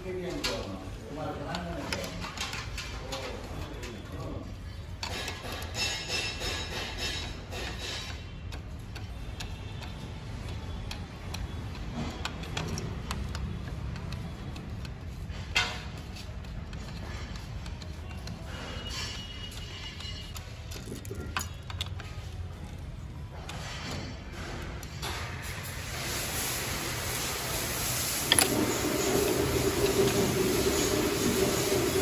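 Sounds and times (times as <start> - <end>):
sharp metallic clack: 5.0 - 8.4.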